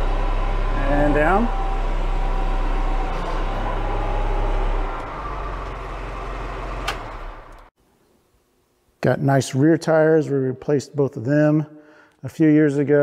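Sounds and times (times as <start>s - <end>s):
diesel engine running: 0.0s - 7.7s
hydraulics lowering grapple: 0.0s - 7.7s.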